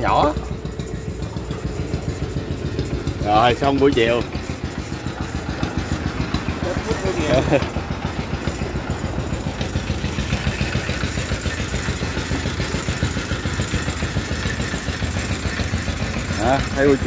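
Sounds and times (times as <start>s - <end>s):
small engine running: 0.0s - 17.0s.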